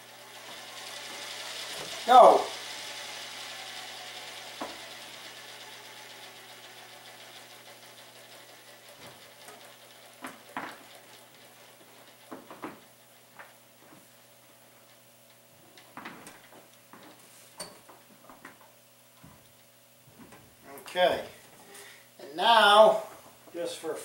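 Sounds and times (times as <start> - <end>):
rotor spinning down whooshing: 0.0 - 12.9.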